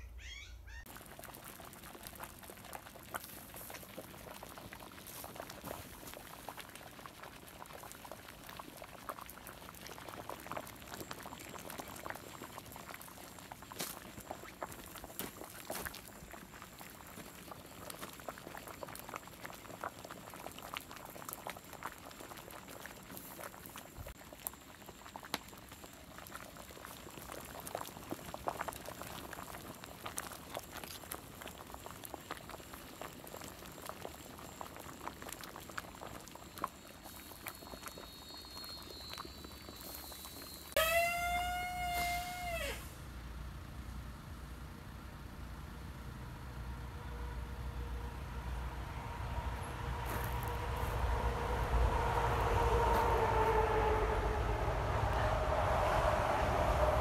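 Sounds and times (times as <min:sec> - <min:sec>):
pot of broth bubbling: 0:00.9 - 0:42.7.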